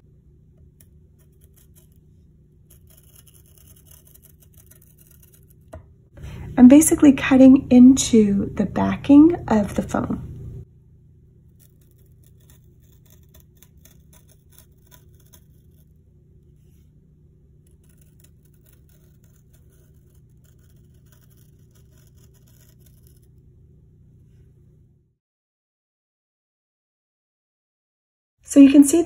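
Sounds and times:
tool tip scratching paper: 0.7 - 5.8, 11.5 - 16.0, 17.6 - 23.4.

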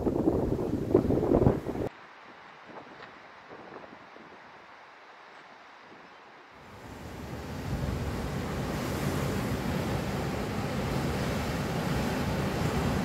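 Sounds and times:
wind buffeting microphone: 0.0 - 1.9
sea waves washing on shore: 6.6 - 13.0.

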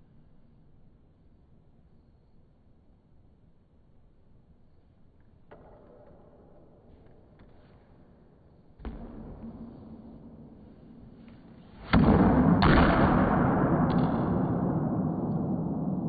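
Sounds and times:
racquet striking racquetball: 5.4 - 16.0.

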